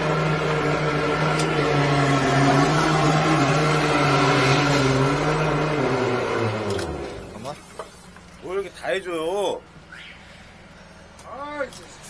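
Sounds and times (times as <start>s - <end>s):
drain jetter pump droning: 0.0s - 7.6s.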